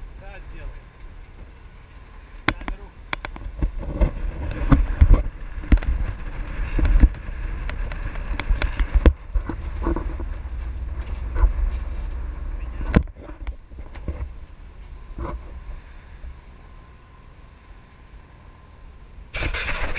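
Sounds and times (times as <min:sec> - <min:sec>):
wind buffeting microphone: 0:00.0 - 0:17.0
sharp knocks and clicks: 0:02.5 - 0:06.0.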